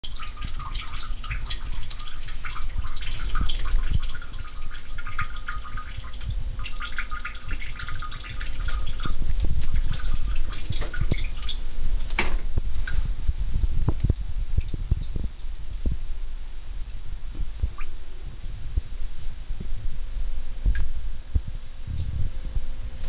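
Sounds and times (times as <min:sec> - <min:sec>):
liquid trickling into toilet water: 0:00.0 - 0:16.2.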